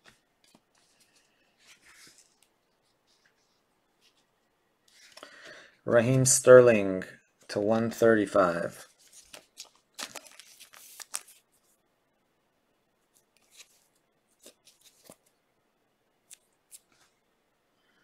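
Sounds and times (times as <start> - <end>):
trading cards rustling and clicking: 0.0 - 4.3, 8.9 - 11.7, 13.1 - 15.4, 16.2 - 17.1.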